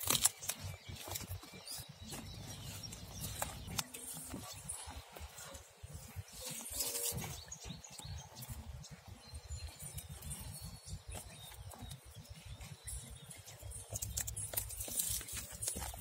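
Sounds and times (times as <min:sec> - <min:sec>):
banana leaf crinkling: 0:00.0 - 0:05.5, 0:13.8 - 0:16.0.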